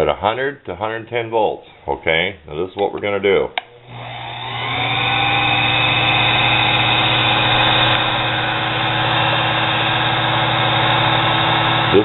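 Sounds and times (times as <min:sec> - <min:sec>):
lathe motor humming with whine: 0:03.8 - 0:12.0.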